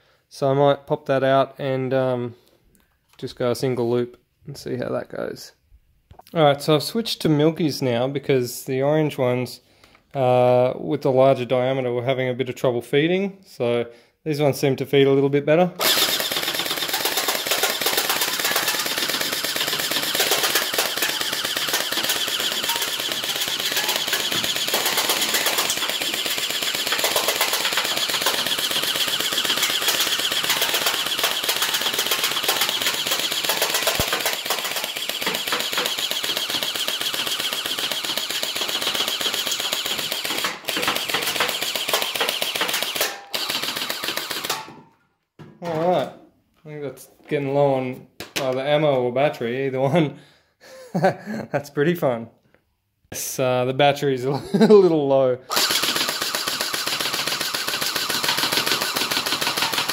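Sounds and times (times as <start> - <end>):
gel blaster firing full-auto: 15.8 - 44.8, 55.5 - 59.9
gel balls knocking over cans: 15.8 - 46.1, 55.5 - 59.9.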